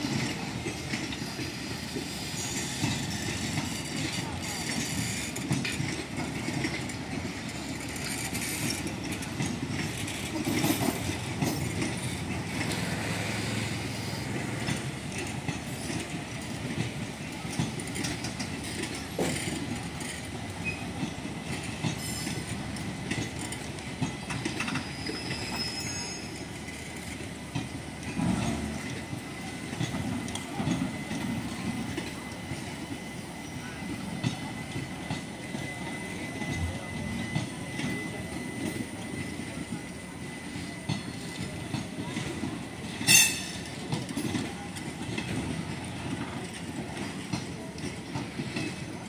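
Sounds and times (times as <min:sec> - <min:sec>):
train wheels rumbling on rail: 0:00.0 - 0:49.0.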